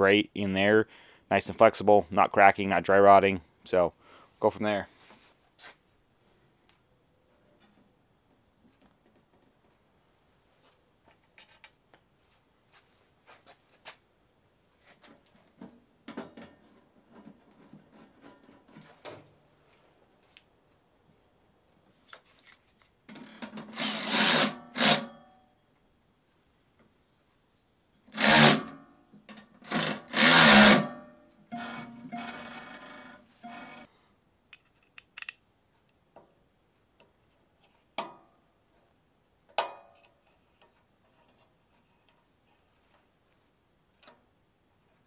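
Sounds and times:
power tool motor running: 0:23.8 - 0:25.1, 0:28.2 - 0:28.7, 0:29.7 - 0:33.8
clicks and knocks of handling parts: 0:34.5 - 0:36.4, 0:39.5 - 0:43.4.

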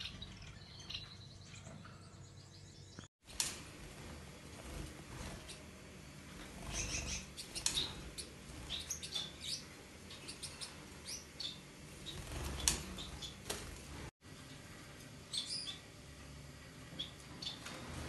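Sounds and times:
finches chirping: 0:06.5 - 0:13.5, 0:15.3 - 0:15.9.

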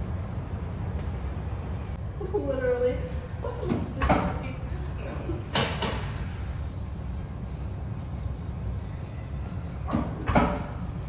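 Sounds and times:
gym room ambience rumble: 0:00.0 - 0:11.0.

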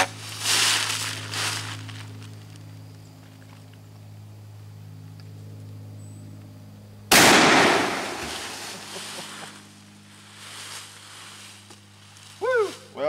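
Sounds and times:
echo of gunshot: 0:07.1 - 0:08.6
loud shotgun blast: 0:07.1 - 0:08.6.

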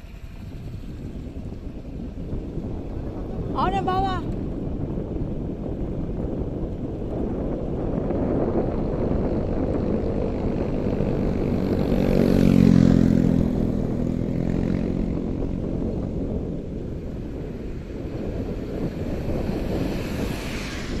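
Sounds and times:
wind rumbling on microphone: 0:00.0 - 0:21.0
vehicle engine passing by: 0:08.9 - 0:16.0, 0:16.9 - 0:21.0.

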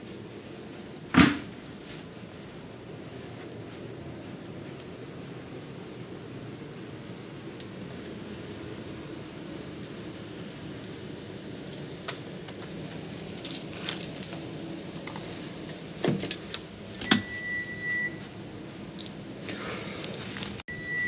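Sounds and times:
sharp metal clink ringing: 0:00.0 - 0:00.4, 0:07.6 - 0:08.5, 0:16.2 - 0:17.8
metal dog tags jingling: 0:00.0 - 0:01.2, 0:07.6 - 0:17.8.

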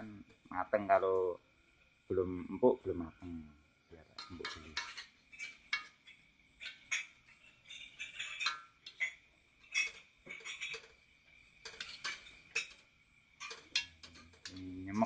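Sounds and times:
faint steady high tone: 0:00.0 - 0:04.8, 0:13.4 - 0:15.0
spatula scraping metal wok: 0:04.2 - 0:05.9.

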